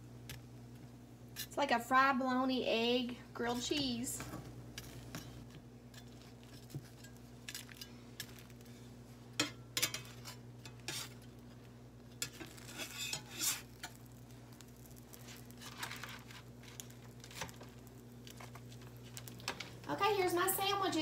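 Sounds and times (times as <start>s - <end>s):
spatula scraping a skillet: 4.8s - 19.2s.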